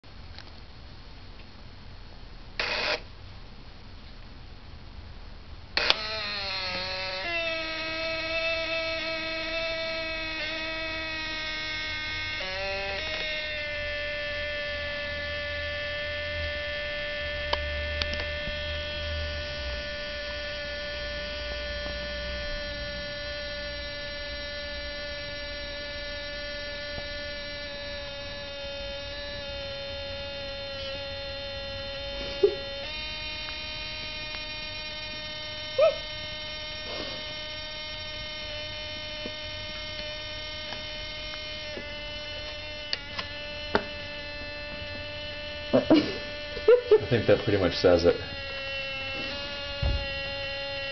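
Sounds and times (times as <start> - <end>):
camera motor whining: 2.6 - 3.1, 5.8 - 50.9
sharp clicks: 5.8 - 13.7, 17.5 - 18.6, 32.1 - 44.2.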